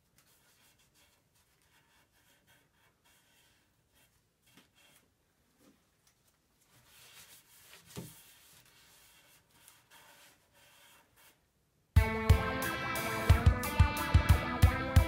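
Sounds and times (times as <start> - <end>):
faint rubbing and handling: 0.0 - 11.6
guitar music: 12.0 - 15.0.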